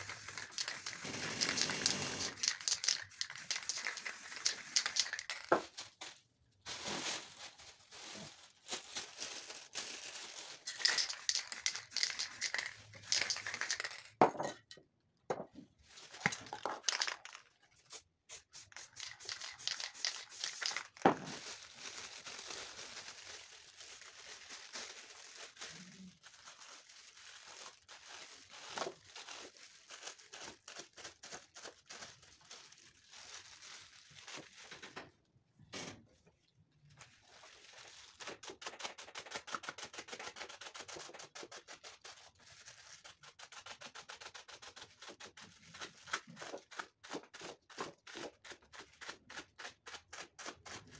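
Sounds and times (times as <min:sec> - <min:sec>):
plastic rustling and crinkling: 0:00.0 - 0:14.2, 0:15.7 - 0:17.8, 0:18.8 - 0:35.2, 0:36.3 - 0:38.6.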